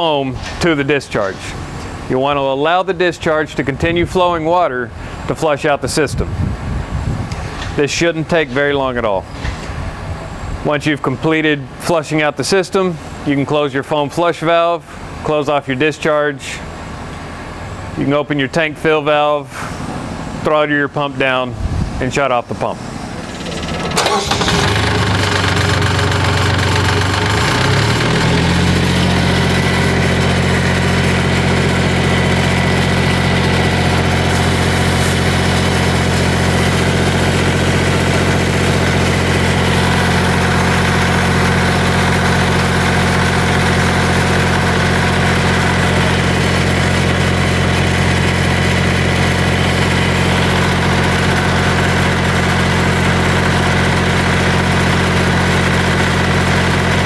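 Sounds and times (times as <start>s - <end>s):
fire pump engine running: 0.0s - 10.8s, 11.4s - 57.0s.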